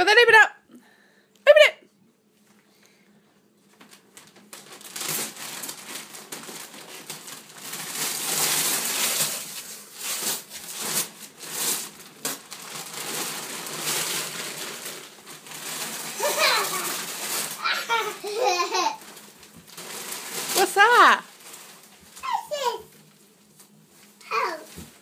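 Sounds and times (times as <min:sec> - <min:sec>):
wrapping paper tearing and crumpling: 0:03.8 - 0:25.0.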